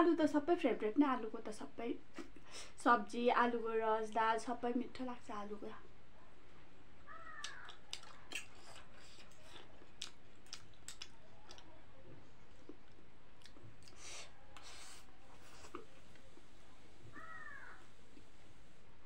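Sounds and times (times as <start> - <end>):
chewing: 7.3 - 16.5.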